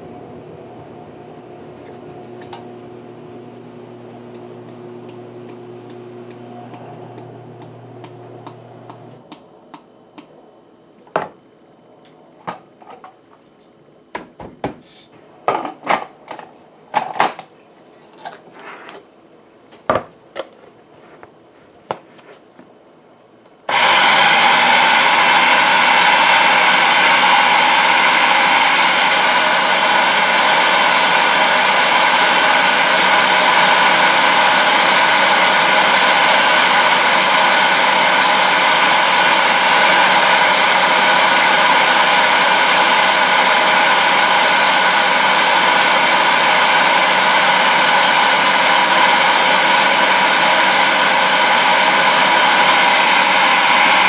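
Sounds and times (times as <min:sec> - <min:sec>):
food processor motor running: 0:01.9 - 0:09.3, 0:23.7 - 0:54.0.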